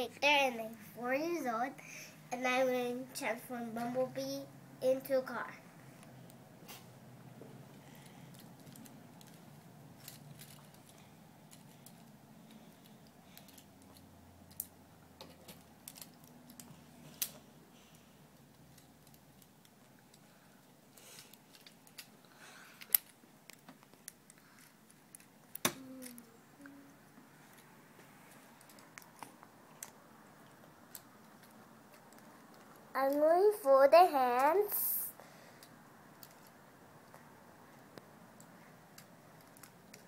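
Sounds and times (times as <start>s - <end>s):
plastic toy parts clicking: 10.0s - 12.8s, 15.3s - 17.4s, 21.2s - 22.1s, 22.8s - 26.2s, 35.6s - 37.2s, 39.0s - 40.0s.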